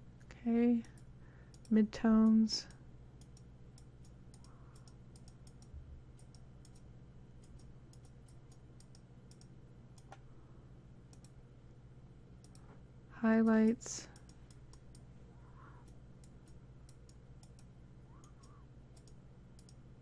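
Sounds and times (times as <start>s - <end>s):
low electrical hum: 0.0s - 20.0s
computer mouse clicking: 0.8s - 2.4s, 3.2s - 10.2s, 11.1s - 11.4s, 12.4s - 12.7s, 14.1s - 19.8s.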